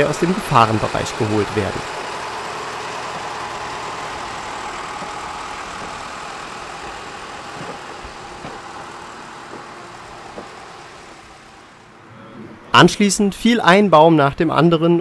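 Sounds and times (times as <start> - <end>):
diesel locomotive engine running: 0.0 - 12.1
faint knocks: 4.2 - 10.9.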